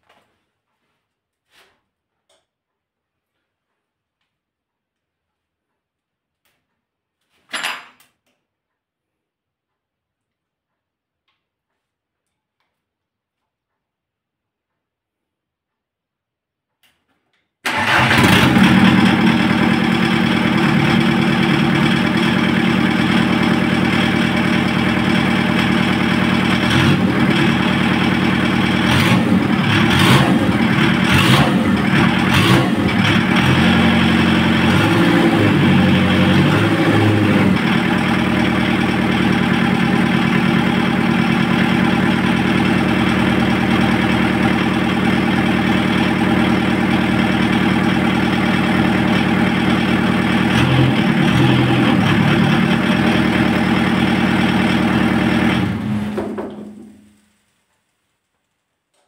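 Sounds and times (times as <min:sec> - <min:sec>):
diesel engine running: 0:17.7 - 0:56.4.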